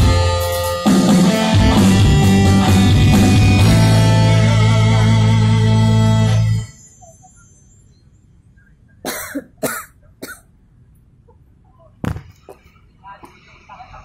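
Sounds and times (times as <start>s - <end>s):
live band music: 0.0s - 6.6s
person coughing: 9.0s - 10.5s.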